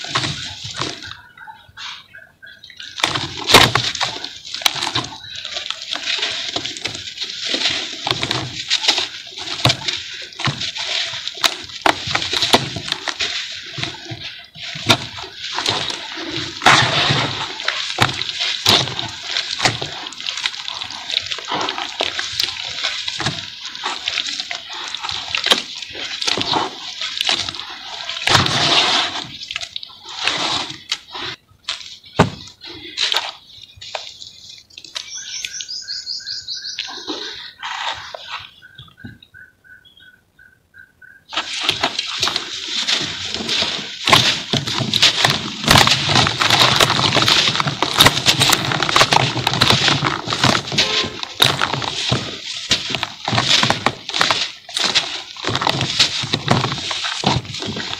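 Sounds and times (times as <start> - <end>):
cement chunks crumbling into water: 0.0 - 1.2, 2.8 - 35.2, 41.3 - 57.9
wet cement slurry squelching: 0.0 - 35.7, 41.3 - 57.9
high chirping call: 1.0 - 3.0, 33.4 - 41.3.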